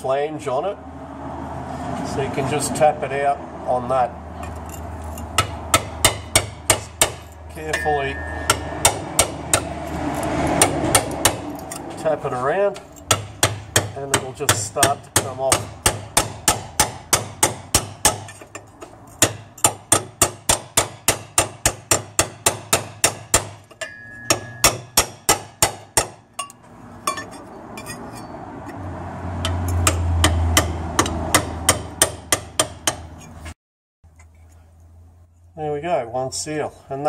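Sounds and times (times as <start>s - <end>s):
low rumbling hum: 4.2s - 13.9s
hammer tapping on steel drift: 5.4s - 11.9s, 12.7s - 28.3s, 29.4s - 33.3s.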